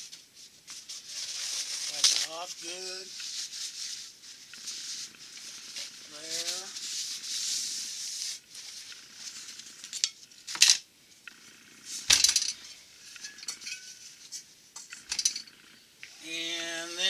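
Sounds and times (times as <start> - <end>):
metal clinks and clanks: 12.1 - 14.0, 14.8 - 15.5.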